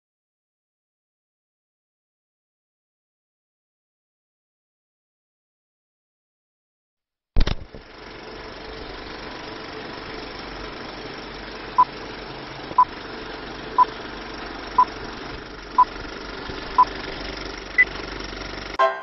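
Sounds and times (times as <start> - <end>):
film projector whirring: 7.4 - 18.8.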